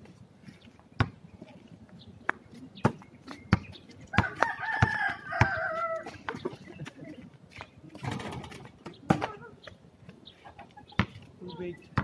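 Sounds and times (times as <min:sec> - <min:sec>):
basketball bouncing on concrete: 0:01.0 - 0:01.2, 0:02.3 - 0:06.0, 0:11.0 - 0:11.2
rooster crowing: 0:04.2 - 0:06.1.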